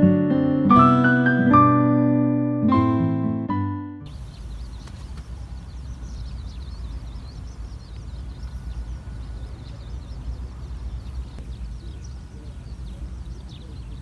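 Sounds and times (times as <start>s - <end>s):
small birds twittering: 4.0s - 14.0s.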